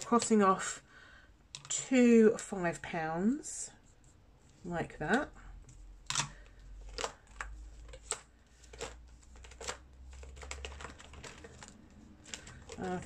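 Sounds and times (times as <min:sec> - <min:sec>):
ring binder clicks and rustles: 0:05.1 - 0:13.0.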